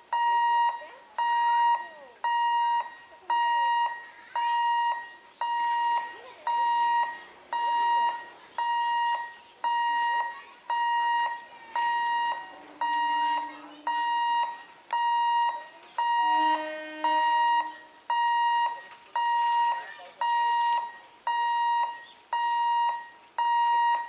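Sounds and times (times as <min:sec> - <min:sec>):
level crossing alarm beeping: 0:00.0 - 0:24.0
low tone: 0:10.7 - 0:19.3.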